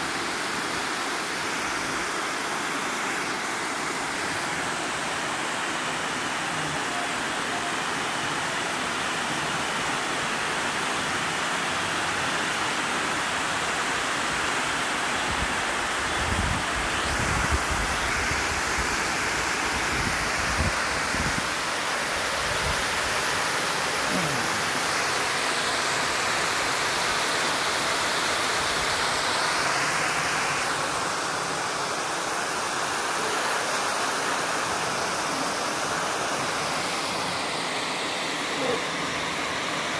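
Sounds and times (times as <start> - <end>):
water rushing over dam spillway: 0.0 - 39.9.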